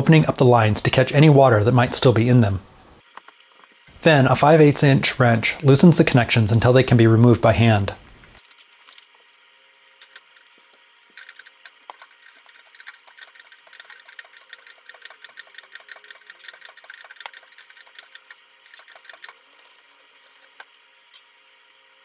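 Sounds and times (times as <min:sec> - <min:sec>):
wrench clicking and rattling: 0:11.1 - 0:19.6.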